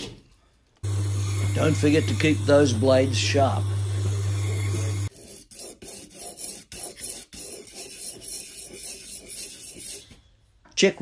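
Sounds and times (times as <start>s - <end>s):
sharpening machine motor humming: 0.8s - 5.1s
blade scraping on sharpening stone: 4.0s - 10.1s.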